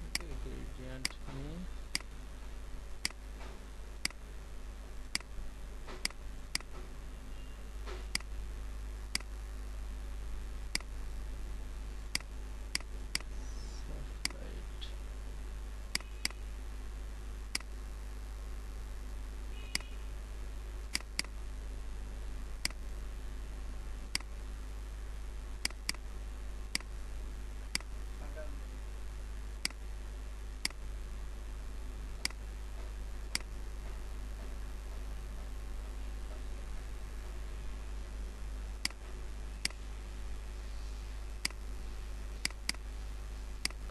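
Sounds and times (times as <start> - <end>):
steady low hum: 0.0 - 43.9
computer mouse clicking: 5.1 - 5.3, 6.0 - 6.7, 9.1 - 9.3, 10.7 - 10.9, 12.1 - 13.3, 20.9 - 21.4, 33.3 - 33.5, 43.6 - 43.8.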